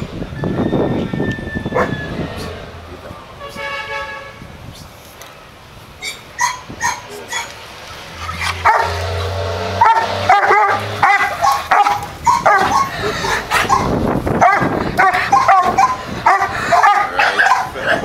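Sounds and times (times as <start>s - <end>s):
dog barking and yipping: 1.8s - 2.0s, 6.0s - 7.6s, 8.2s - 18.0s.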